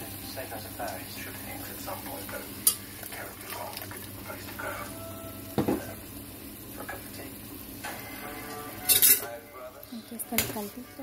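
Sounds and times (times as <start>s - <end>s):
chicken sizzling in a frying pan: 0.0s - 11.0s
metal spoon knocking on pan: 5.6s - 5.9s.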